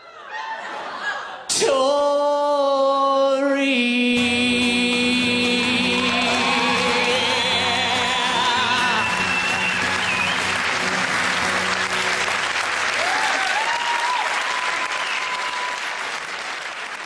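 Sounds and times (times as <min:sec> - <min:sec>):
audience applauding and cheering: 0:05.5 - 0:17.0
whistles from audience: 0:08.6 - 0:12.0, 0:13.2 - 0:15.9.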